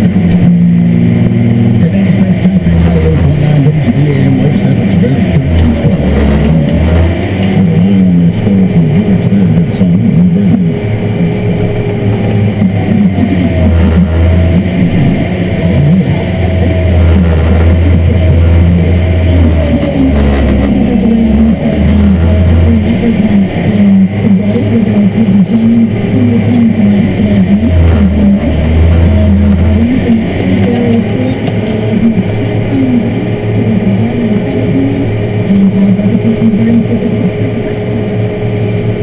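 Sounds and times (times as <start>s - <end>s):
tractor engine running under load: 0.0s - 39.0s
whine rising and falling in pitch: 0.0s - 39.0s.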